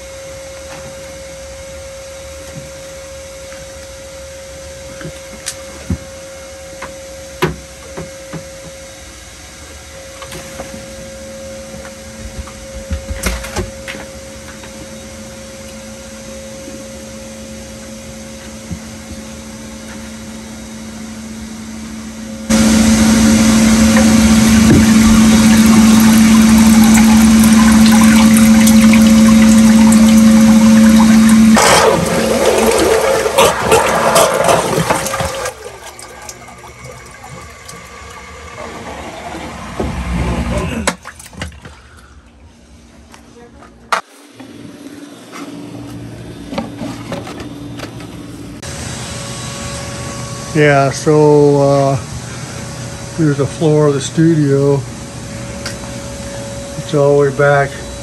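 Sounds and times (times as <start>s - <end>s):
sump pump humming: 0.0s - 43.2s, 44.4s - 58.0s
water rushing: 22.5s - 41.3s.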